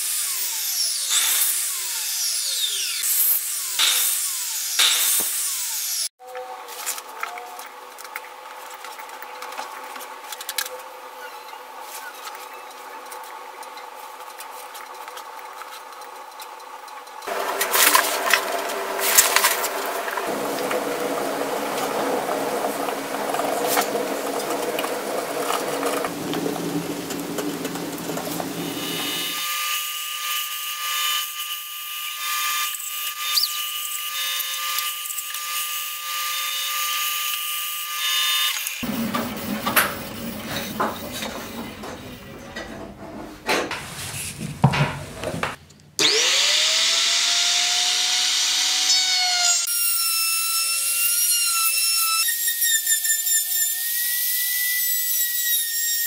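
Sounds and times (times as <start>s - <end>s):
power tool whining: 17.2s - 42.4s, 46.0s - 52.8s.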